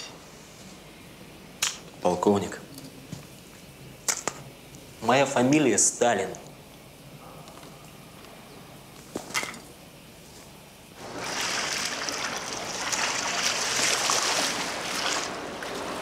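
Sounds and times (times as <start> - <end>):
water splashing and sloshing: 11.0 - 16.0.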